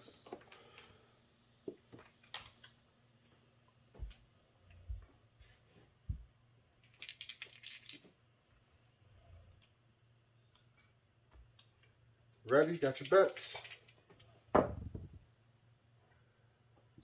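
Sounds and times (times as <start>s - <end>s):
dice clicking on felt table: 6.8s - 8.1s.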